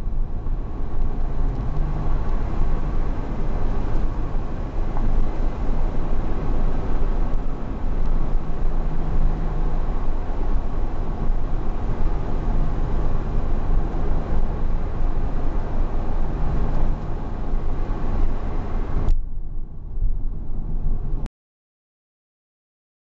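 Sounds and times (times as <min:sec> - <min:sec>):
car engine running at cruise: 0:00.0 - 0:21.3
tyre and road noise: 0:00.0 - 0:21.3.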